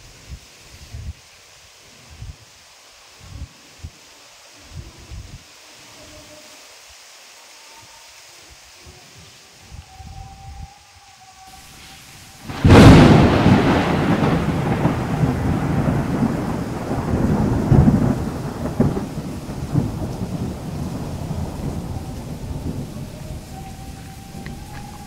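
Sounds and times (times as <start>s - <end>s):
rain-like hiss: 0.0s - 25.0s
thunder crack and rumble: 12.4s - 25.0s.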